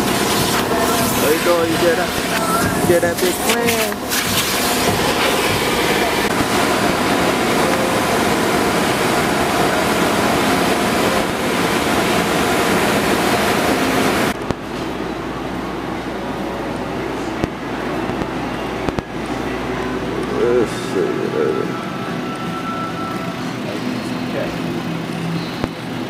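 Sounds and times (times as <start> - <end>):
water spraying on car glass: 0.0 - 7.2
low hum: 0.0 - 26.0.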